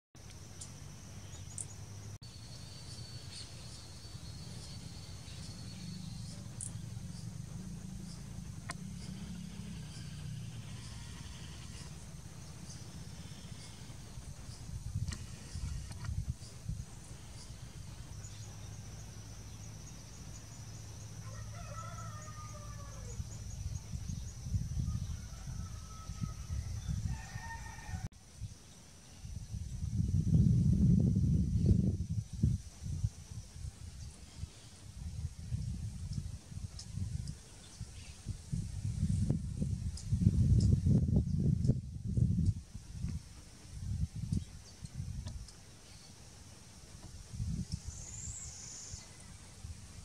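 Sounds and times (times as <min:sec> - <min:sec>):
high insect trill: 0:00.2 - 0:50.0
low rumble: 0:03.6 - 0:21.1
rooster crowing: 0:21.2 - 0:23.3, 0:24.8 - 0:28.1.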